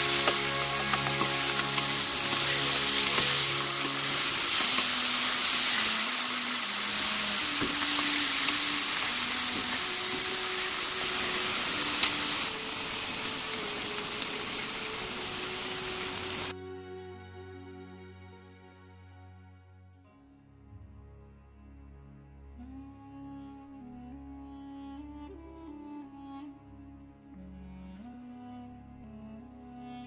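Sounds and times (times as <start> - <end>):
meat sizzling in frying pan: 0.0 - 16.5.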